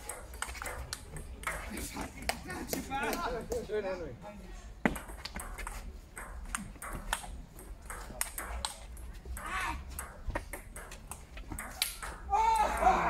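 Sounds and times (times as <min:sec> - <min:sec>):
ping pong ball clicking: 0:00.0 - 0:02.4, 0:04.9 - 0:12.9.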